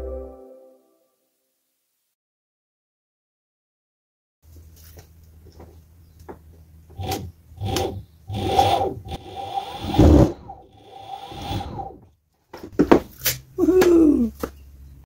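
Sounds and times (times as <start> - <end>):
plastic grip scraping on wood: 6.9 - 11.9.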